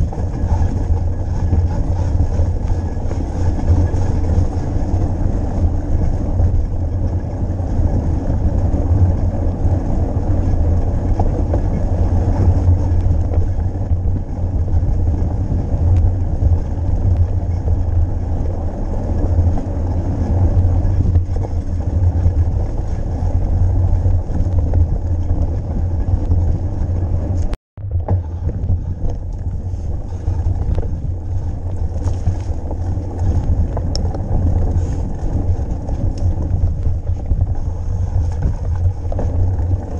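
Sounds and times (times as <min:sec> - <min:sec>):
bike rumbling over rough ground: 0:00.0 - 0:39.9
wind buffeting microphone: 0:00.0 - 0:39.9.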